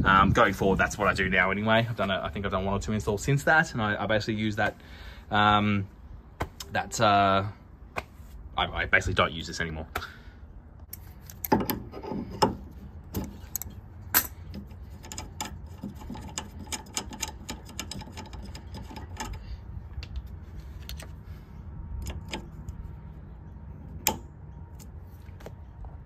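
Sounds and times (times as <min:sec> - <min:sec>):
steady low rumble: 0:00.0 - 0:11.5.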